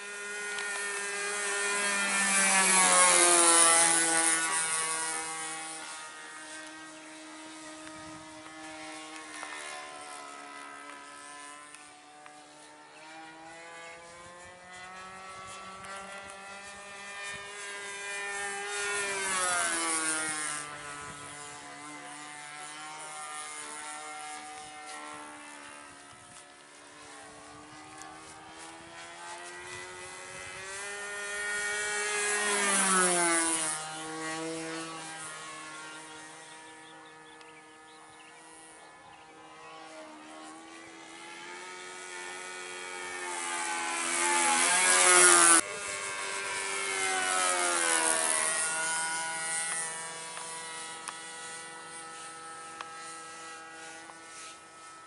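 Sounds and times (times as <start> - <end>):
model plane engine droning: 0.0 - 55.0.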